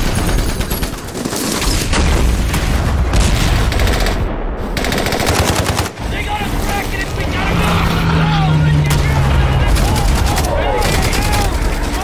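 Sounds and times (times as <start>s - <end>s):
machine-gun and rifle fire: 0.0s - 6.0s, 9.4s - 12.0s.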